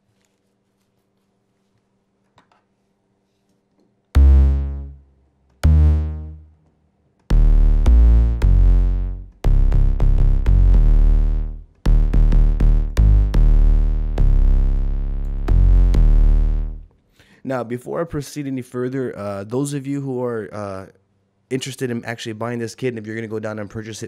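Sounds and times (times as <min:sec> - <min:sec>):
synth bass notes: 0:04.2 - 0:06.6, 0:07.3 - 0:16.9.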